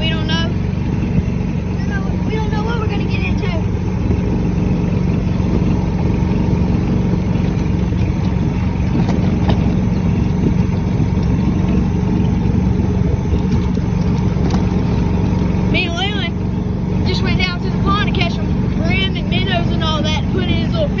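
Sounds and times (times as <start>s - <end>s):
vehicle engine running: 0.0s - 21.0s
faint knocks and rattles: 7.4s - 15.6s.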